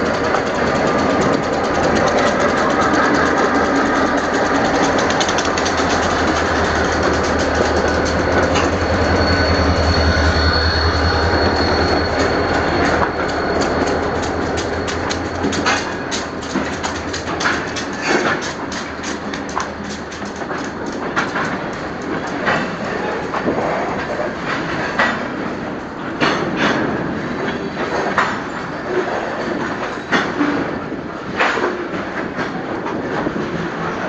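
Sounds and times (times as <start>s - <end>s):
wheels clicking over rail joints: 0.0s - 10.3s, 10.9s - 34.0s
diesel locomotive engines droning: 0.0s - 34.0s.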